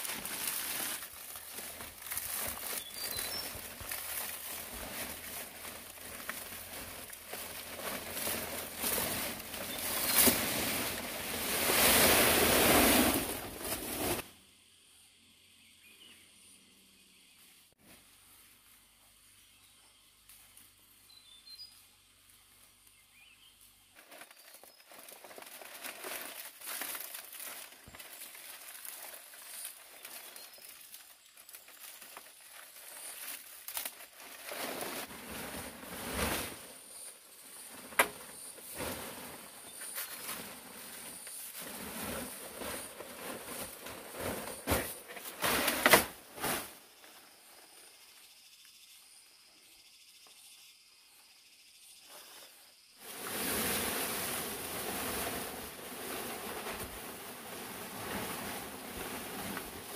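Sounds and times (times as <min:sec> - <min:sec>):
knocks and scrapes: 0:00.0 - 0:14.2, 0:34.3 - 0:46.8, 0:53.0 - 0:59.9
rustling and crinkling: 0:00.0 - 0:14.2, 0:23.5 - 0:47.8, 0:52.1 - 0:59.9.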